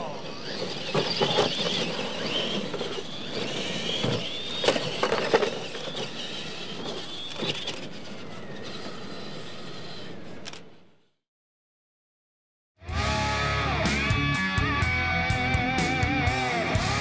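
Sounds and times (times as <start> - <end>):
toy trucks landing clatter: 0.0 - 10.8
toy truck motor whine: 0.0 - 11.2.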